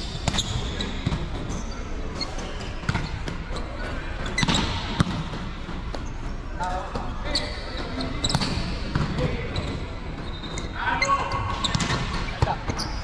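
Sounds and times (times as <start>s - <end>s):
volleyball hits and bounces: 0.1s - 1.6s, 2.2s - 7.1s, 11.3s - 13.0s.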